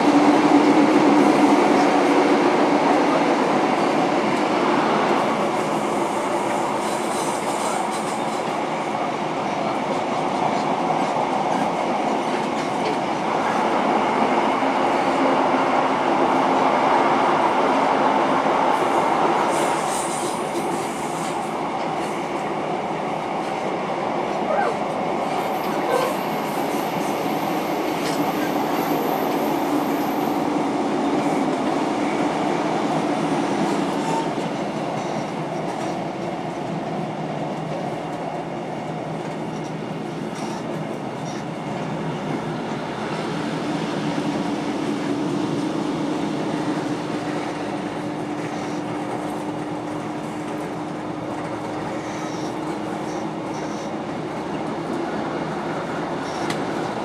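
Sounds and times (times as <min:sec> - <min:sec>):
train wheels rumbling on rail: 0:00.0 - 0:57.0
faint rail clicks: 0:56.2 - 0:56.7.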